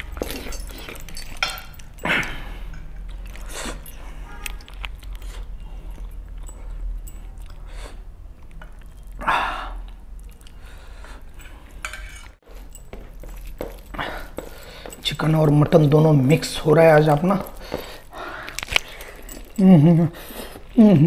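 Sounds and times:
chewing and smacking: 0.0 - 20.8.

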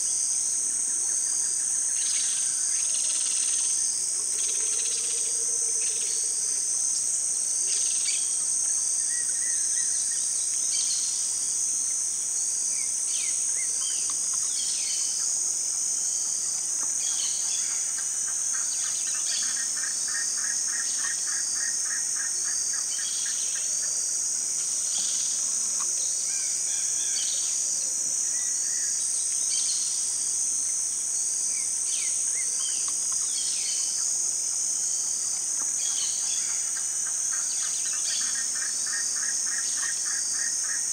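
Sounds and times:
insects chorus: 0.0 - 40.9.

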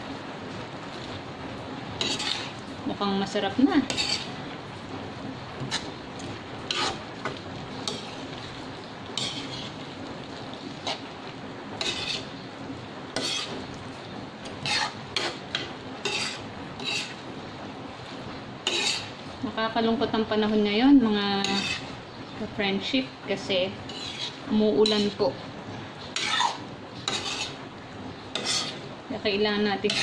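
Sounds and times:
vegetables sizzling: 0.0 - 30.0
metal spoon scraping a wok: 2.0 - 2.7, 3.3 - 4.5, 5.6 - 10.0, 10.6 - 11.2, 11.8 - 12.5, 13.1 - 13.8, 14.4 - 17.2, 18.6 - 19.2, 21.4 - 22.0, 23.7 - 25.4, 26.0 - 27.6, 28.2 - 28.9, 29.8 - 30.0.

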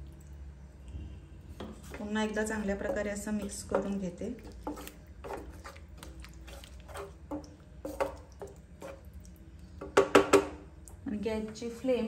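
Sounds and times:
spatula scraping thick gravy: 1.5 - 9.2
spatula knocking against pan: 9.8 - 10.6.

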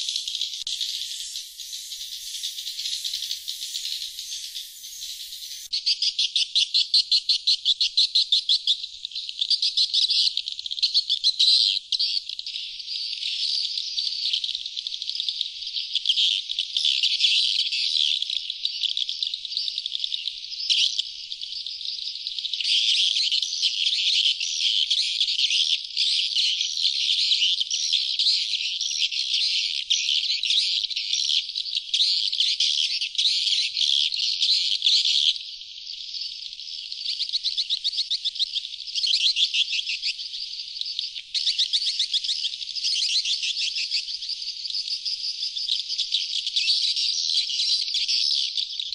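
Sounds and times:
swiftlets twittering and chirping: 0.0 - 5.9.

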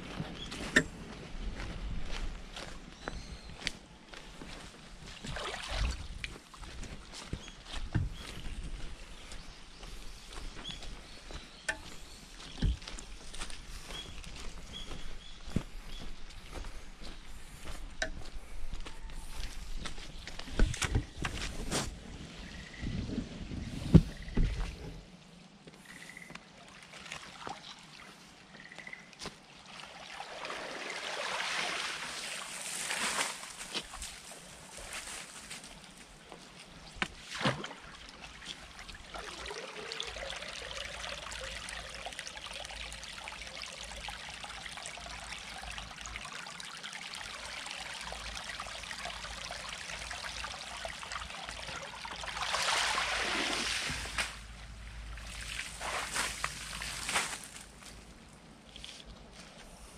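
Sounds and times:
water trickling in a ditch: 0.1 - 22.7, 24.2 - 59.5
water splashing from raking: 5.0 - 6.7, 26.6 - 28.4, 29.1 - 58.0.

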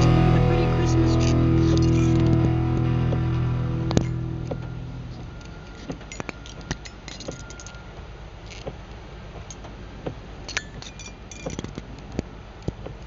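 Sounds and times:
car low rumble: 0.0 - 6.1.

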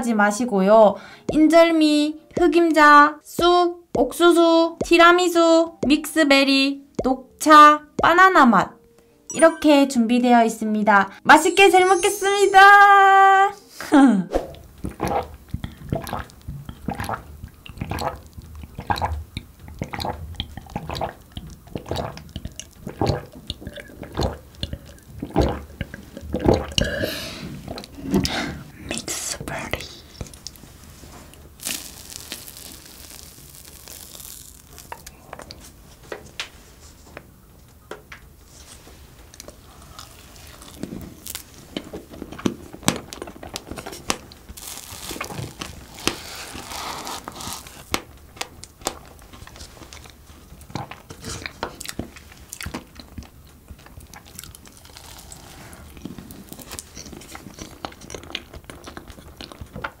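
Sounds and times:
mouth clicks and smacks: 6.9 - 7.2, 14.5 - 27.0, 56.8 - 60.0
person chewing: 14.9 - 28.0, 31.6 - 35.6, 39.4 - 41.6, 44.4 - 47.9, 49.9 - 53.2, 53.8 - 59.9.

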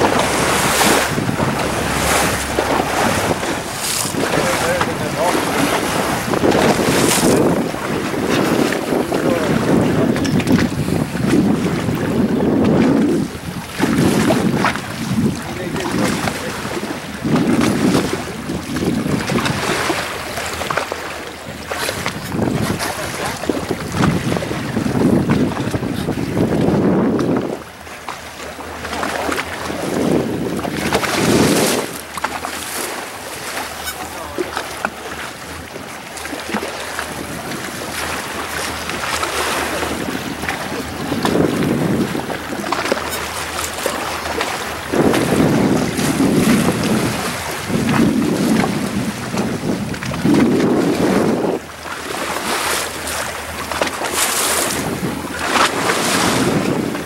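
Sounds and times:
wind on microphone: 0.0 - 28.0, 28.9 - 57.0
water lapping against boat: 0.0 - 57.0.

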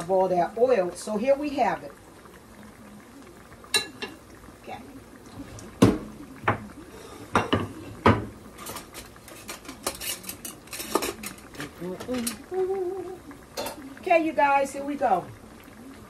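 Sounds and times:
food sizzling in oil: 0.0 - 16.0
dishes clinking on counter: 7.3 - 11.4, 13.6 - 13.8.

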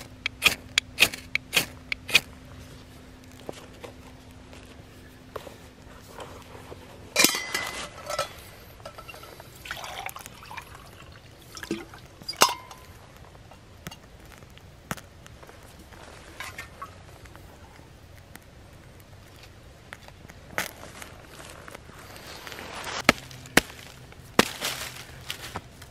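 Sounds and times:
liquid sloshing: 9.6 - 12.1.

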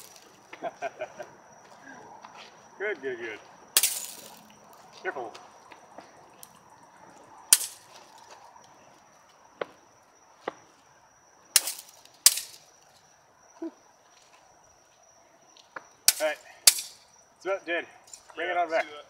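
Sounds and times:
sharp cracks: 3.7 - 4.5, 7.5 - 8.2, 11.5 - 12.9, 16.0 - 17.1.

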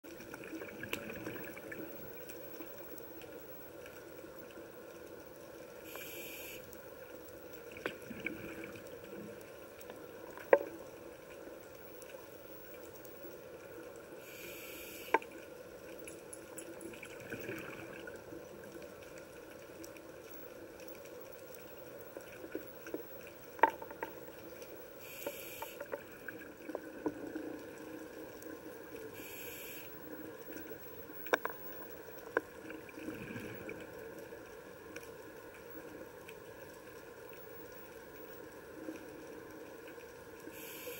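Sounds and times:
underwater low wash: 0.1 - 40.9
sharp clicks underwater: 9.8 - 11.0, 14.8 - 17.9, 20.9 - 27.3, 29.2 - 33.6
short regulator hiss: 25.0 - 25.8, 29.2 - 29.9.

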